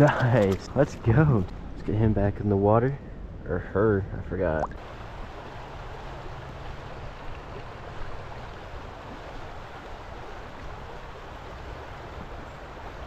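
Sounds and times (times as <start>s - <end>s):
river water rushing: 4.8s - 13.0s.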